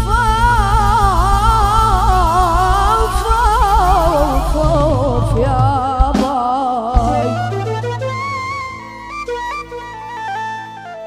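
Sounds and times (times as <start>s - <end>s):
keyboard drone: 0.0s - 6.3s, 7.0s - 11.0s
drum beat: 0.0s - 7.7s
boy singing melismatic vocals: 0.0s - 8.7s.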